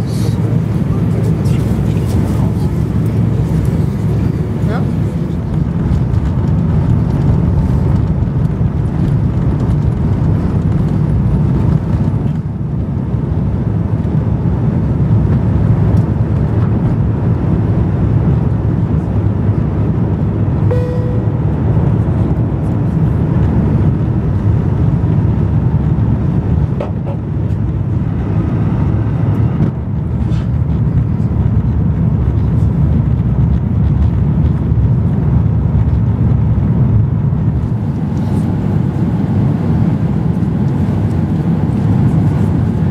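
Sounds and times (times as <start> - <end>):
jet engine and airflow rush: 0.0 - 42.9.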